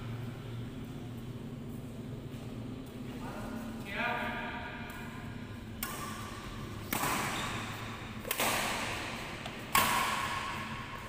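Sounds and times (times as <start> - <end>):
rackets hitting shuttlecock: 4.8 - 11.0.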